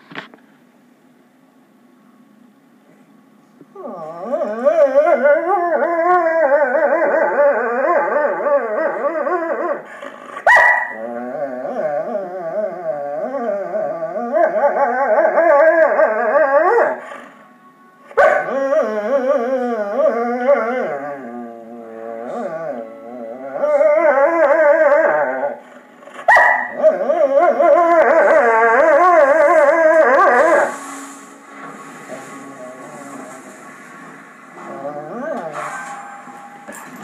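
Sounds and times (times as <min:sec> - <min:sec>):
dog howling: 0:03.8 - 0:17.4, 0:18.1 - 0:30.7, 0:34.6 - 0:35.6.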